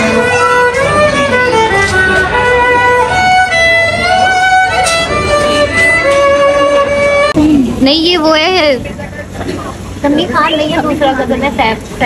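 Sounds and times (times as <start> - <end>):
solo violin melody: 0.0 - 7.4.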